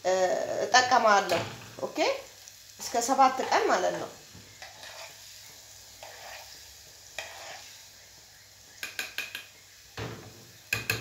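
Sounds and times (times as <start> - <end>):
faint sizzle: 0.0 - 11.0
metal spoon stirring oil: 2.8 - 7.9.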